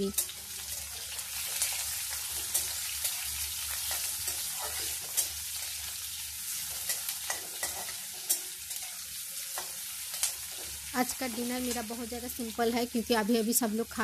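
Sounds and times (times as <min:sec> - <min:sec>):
onions sizzling in hot oil: 0:00.0 - 0:14.0
metal spatula scraping pan: 0:03.8 - 0:05.4, 0:06.7 - 0:09.0.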